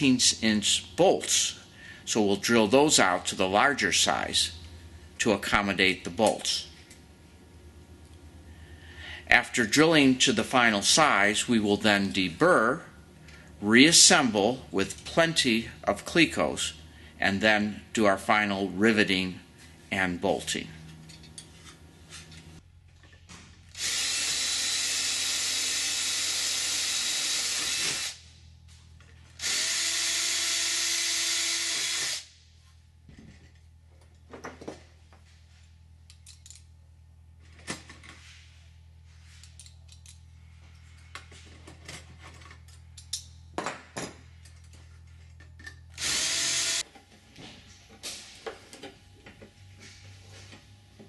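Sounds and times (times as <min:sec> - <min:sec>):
cordless drill drilling metal: 0:23.7 - 0:28.2, 0:29.4 - 0:32.3, 0:46.0 - 0:46.8.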